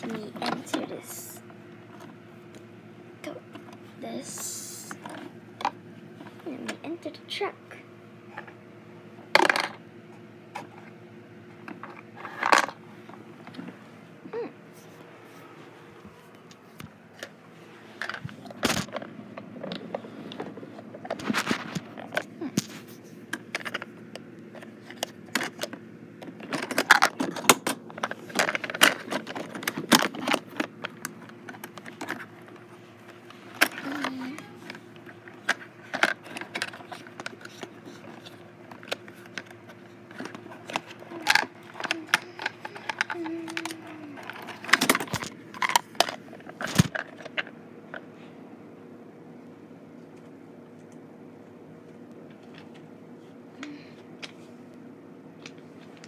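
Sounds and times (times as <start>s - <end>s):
faint steady hum: 0.0s - 56.0s
objects clattering and knocking: 9.3s - 9.8s, 11.6s - 13.8s, 17.1s - 48.1s.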